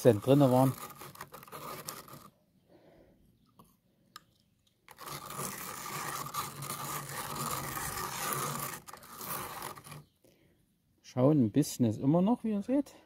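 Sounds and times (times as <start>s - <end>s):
magnet scraping through wet sand: 0.0s - 2.3s, 4.9s - 10.2s.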